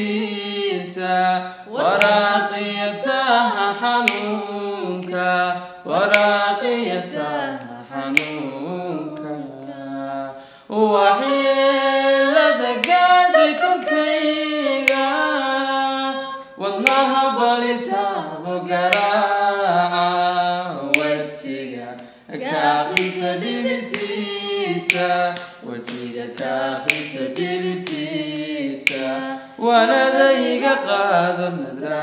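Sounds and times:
man and woman singing unaccompanied: 0.0 - 32.0
sharp click: 4.0 - 4.4, 18.9 - 19.2, 22.9 - 23.3, 24.9 - 27.2.

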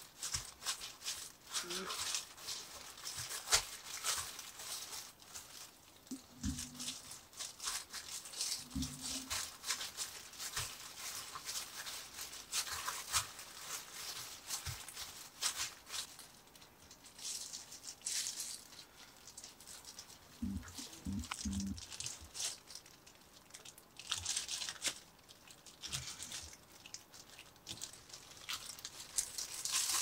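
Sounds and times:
plastic gloves crinkling: 0.0 - 30.0.

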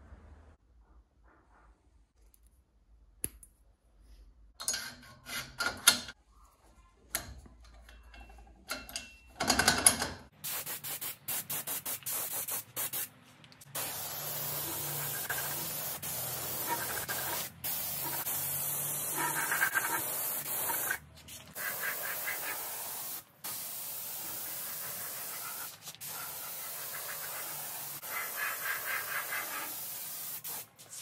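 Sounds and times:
paint spray gun hissing: 10.4 - 13.0, 13.7 - 30.7.

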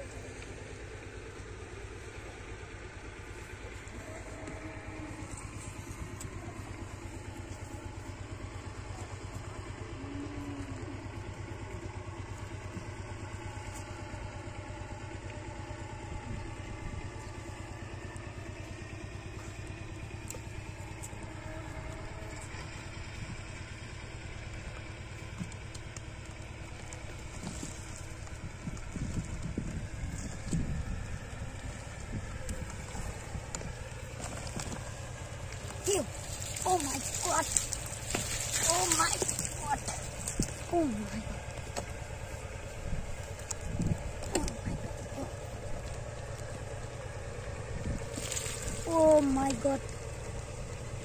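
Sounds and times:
engine idling: 0.0 - 51.0.

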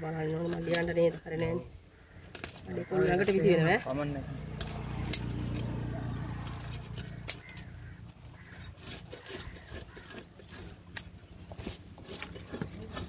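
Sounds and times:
knife scraping: 6.4 - 13.0.

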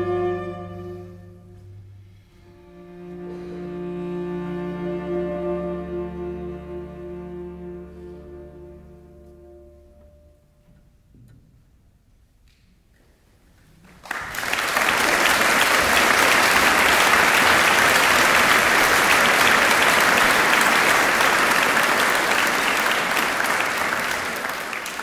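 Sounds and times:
audience applauding: 13.8 - 25.0.

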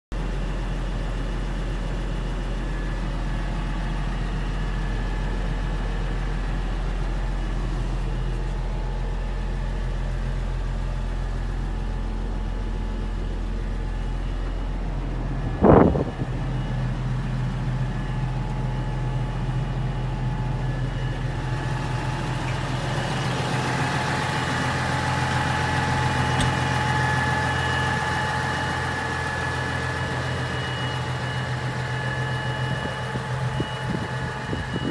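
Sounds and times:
tractor diesel engine idling: 0.1 - 34.9
loud thump: 26.4 - 26.7.

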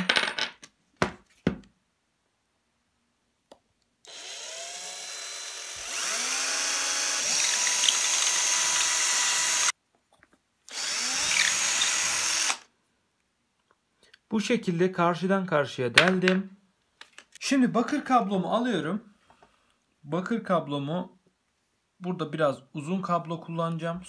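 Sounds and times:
drill boring into wood: 4.1 - 9.7, 10.7 - 12.7.

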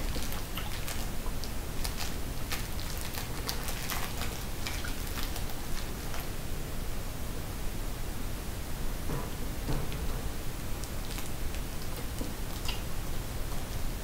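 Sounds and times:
plastic wrapper crinkling: 0.0 - 6.3, 10.8 - 12.8.

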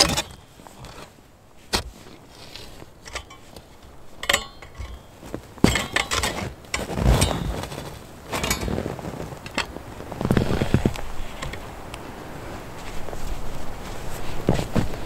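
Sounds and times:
handling rustle: 0.0 - 15.0
antler pieces clacking together: 3.0 - 9.8.

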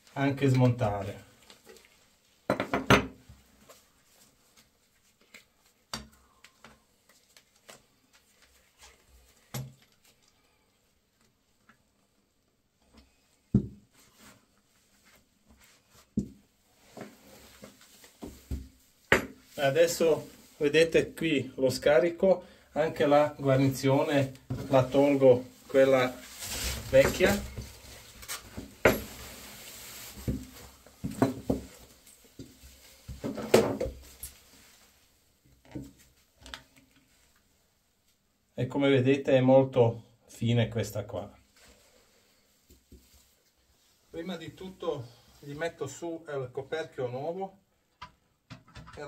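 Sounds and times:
faint rustling: 23.0 - 33.3.

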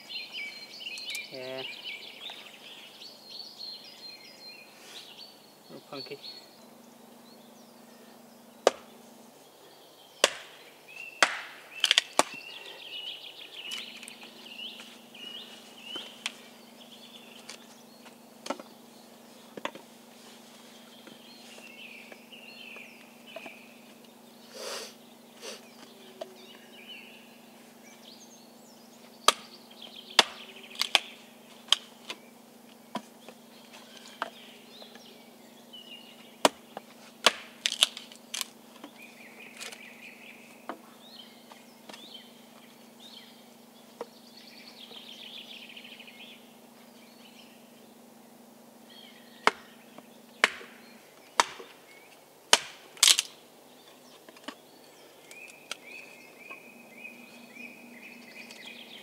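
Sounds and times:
hatchet chopping logs on wood: 8.6 - 9.0, 10.2 - 12.5, 18.4 - 18.7, 19.5 - 19.9, 29.2 - 32.2, 32.9 - 35.0, 36.2 - 39.8, 40.6 - 42.1, 49.4 - 51.8, 52.5 - 53.3.

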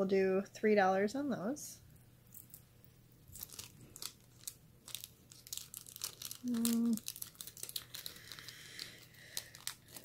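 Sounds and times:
plastic bags crinkling: 3.2 - 10.0
person humming: 6.4 - 7.1.

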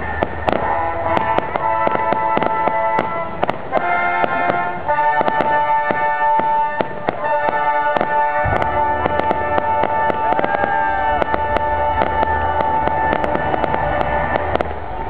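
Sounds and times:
fireworks popping and crackling: 0.0 - 15.0
orchestra playing held notes: 0.0 - 15.0.

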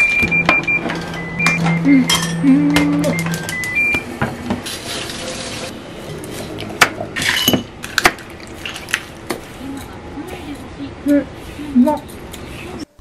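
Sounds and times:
short electronic beep: 0.0 - 4.1
dishes and utensils clinking: 0.9 - 2.5, 6.8 - 9.0.

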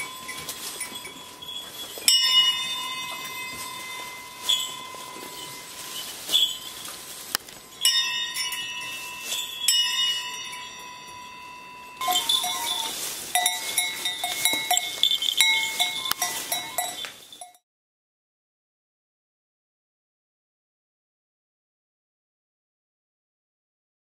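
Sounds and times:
metal goat bells ringing: 0.0 - 17.6.

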